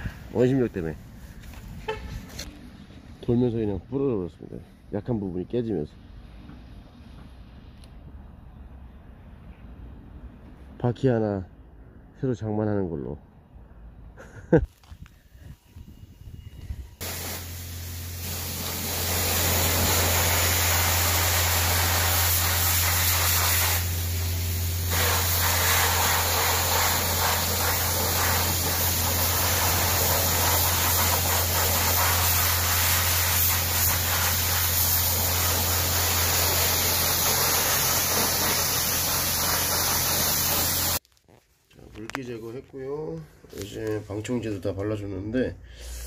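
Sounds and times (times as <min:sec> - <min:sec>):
pressure washer spray hissing: 0:17.0 - 0:41.0.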